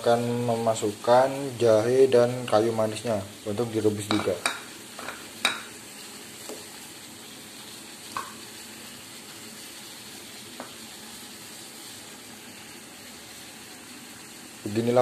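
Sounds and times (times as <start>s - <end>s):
water boiling in a pot: 4.0s - 15.0s.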